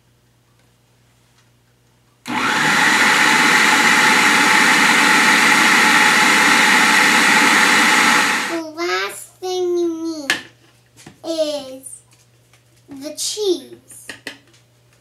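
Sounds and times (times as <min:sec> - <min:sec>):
food processor running: 0:02.3 - 0:08.6.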